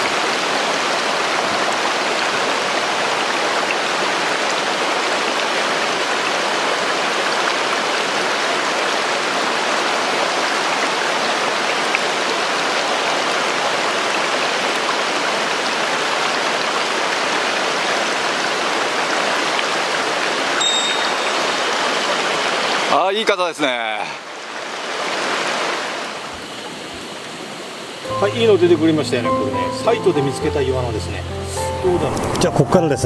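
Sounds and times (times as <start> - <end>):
mountain stream rushing: 0.0 - 32.4
high chirp: 20.6 - 21.8.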